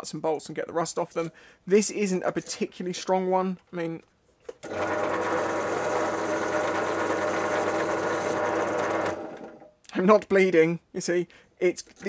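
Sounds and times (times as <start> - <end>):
pillar drill motor running: 4.6 - 9.7.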